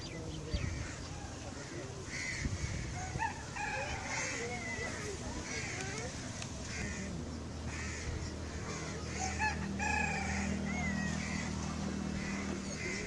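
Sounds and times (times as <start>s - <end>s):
small birds chirping: 0.0s - 2.9s, 4.1s - 13.0s
low steady hum: 0.0s - 13.0s.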